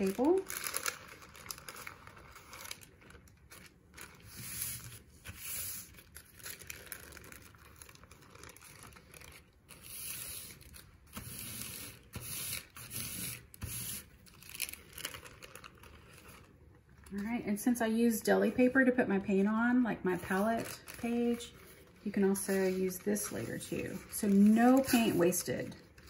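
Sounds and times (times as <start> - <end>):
paper crinkling and rustling: 0.0 - 17.2, 20.2 - 26.0
sticky tearing scrape: 9.7 - 14.7.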